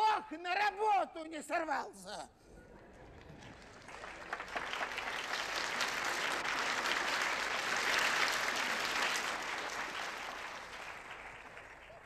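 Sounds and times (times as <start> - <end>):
audience applause: 2.9 - 12.0.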